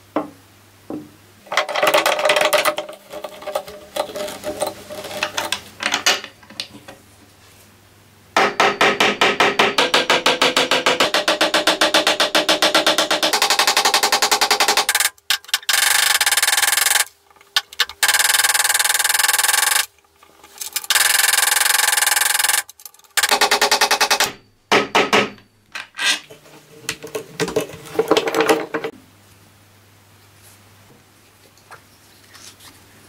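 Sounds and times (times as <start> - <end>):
loose metal parts clicking: 1.5 - 6.9, 12.4 - 24.4.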